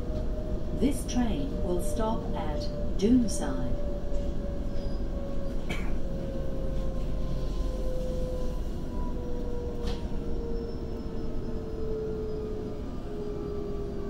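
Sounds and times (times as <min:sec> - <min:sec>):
train wheels rumbling on rail: 0:00.0 - 0:14.0.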